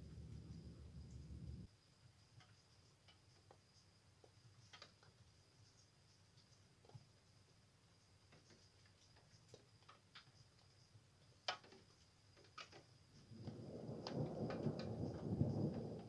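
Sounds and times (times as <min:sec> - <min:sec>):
distant thunder rumbling: 0:00.0 - 0:01.7, 0:13.2 - 0:16.0
faint ticks: 0:00.1 - 0:16.0.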